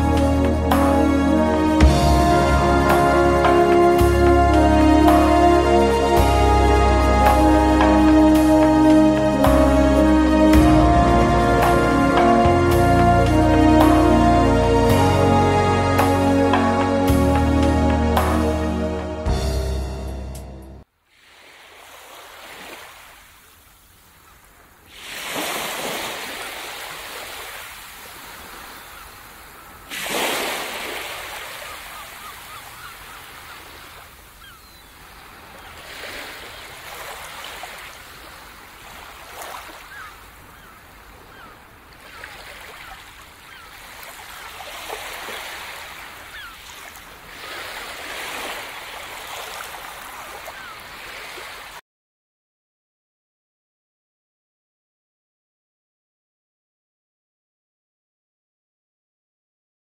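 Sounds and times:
waves washing onto beach: 21.1s - 51.8s.

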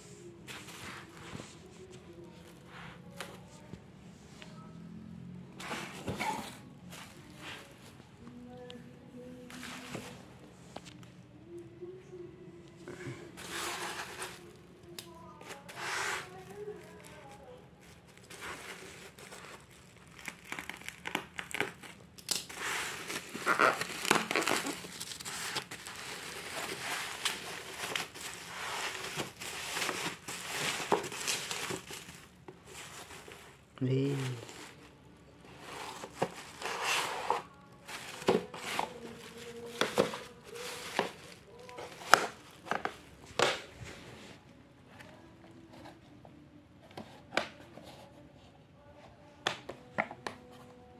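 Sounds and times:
bubble wrap crinkling: 13.4s - 44.4s.

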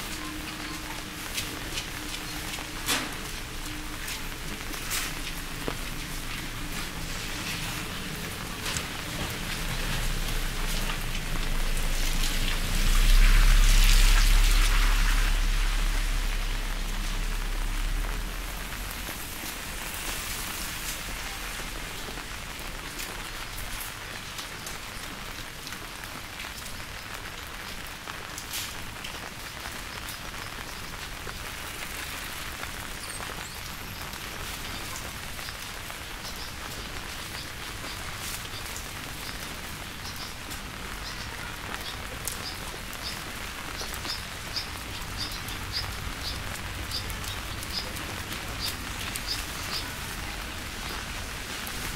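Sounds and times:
steady rain: 0.0s - 51.9s
deep rumble: 5.4s - 19.3s.

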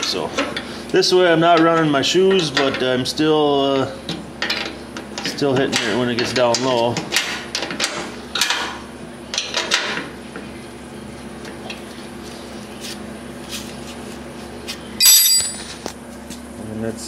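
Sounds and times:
wrench clinking on metal bolts: 15.0s - 15.8s.

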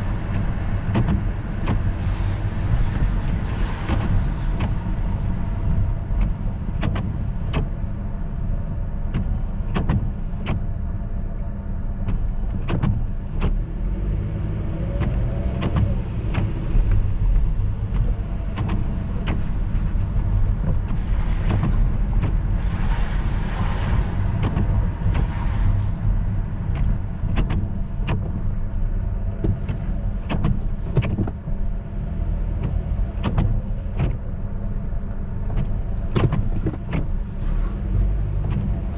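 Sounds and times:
road and engine rumble: 0.0s - 38.9s
sharp clicks and knocks: 0.2s - 2.0s, 2.8s - 4.9s, 5.7s - 7.8s, 9.1s - 10.7s, 11.4s - 13.7s, 14.8s - 22.5s, 23.9s - 26.0s, 26.7s - 28.6s, 29.3s - 31.7s, 32.6s - 34.4s, 35.4s - 38.9s.

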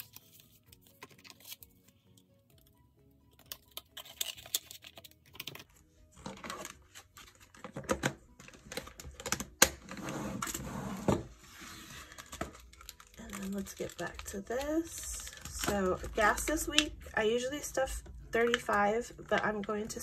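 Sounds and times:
box scraping across table: 9.9s - 12.1s.

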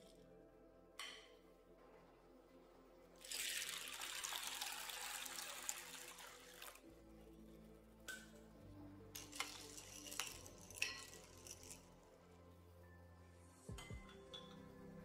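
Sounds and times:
water pouring onto beans: 3.2s - 6.8s.

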